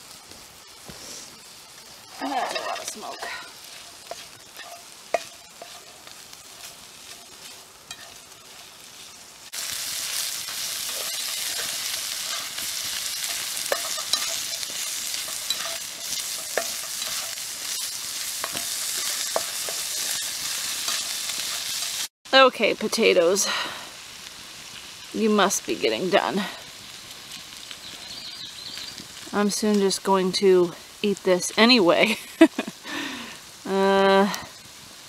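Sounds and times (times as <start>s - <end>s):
potatoes and sausage sizzling: 0.0s - 35.0s
spatula scraping: 2.2s - 9.1s, 9.7s - 22.1s
utensil scraping a pan: 2.2s - 22.1s.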